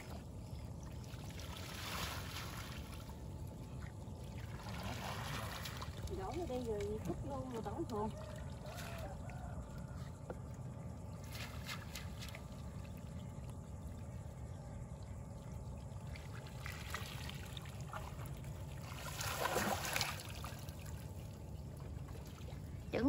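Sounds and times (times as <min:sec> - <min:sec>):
water trickling around boat: 0:00.0 - 0:23.0
water pouring and splashing: 0:01.0 - 0:03.2, 0:04.3 - 0:09.5, 0:16.0 - 0:21.2.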